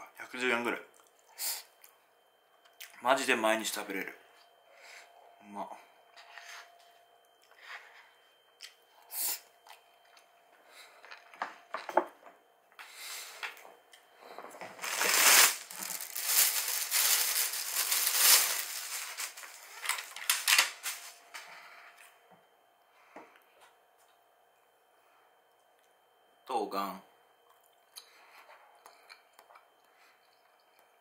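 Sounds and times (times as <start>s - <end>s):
packaging crinkling and tearing: 14.8s - 21.2s.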